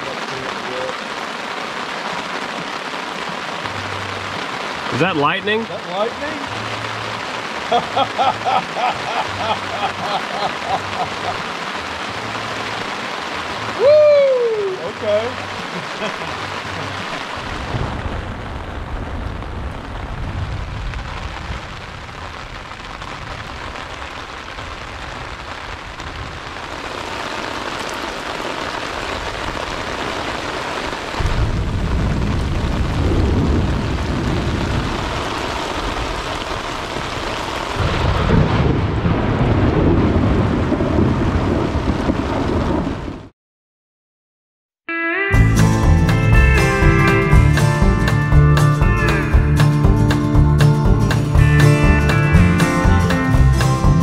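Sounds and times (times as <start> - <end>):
steady rain: 0.0 - 43.3, 45.4 - 54.0
thunder rumbling: 15.7 - 27.3, 31.1 - 43.3.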